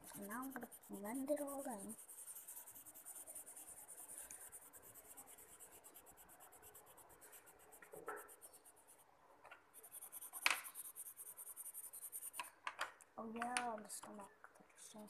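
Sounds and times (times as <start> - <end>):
pencil shading on paper: 0.0 - 9.1, 9.7 - 12.5.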